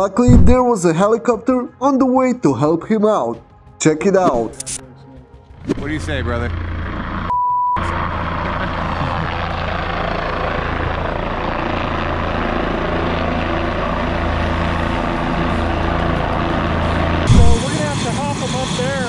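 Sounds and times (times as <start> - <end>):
helicopter rotor and engine: 5.0 - 19.0
censor beep: 7.3 - 7.8.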